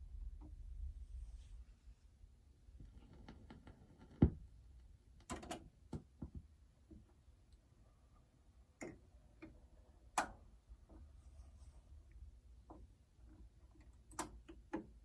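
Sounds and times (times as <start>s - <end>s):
mechanical clicks and knocks: 5.2s - 6.1s.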